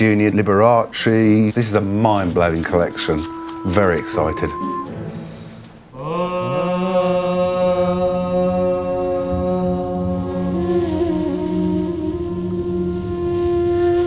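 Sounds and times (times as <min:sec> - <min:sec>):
chanting voice with overtones: 0:00.0 - 0:14.0.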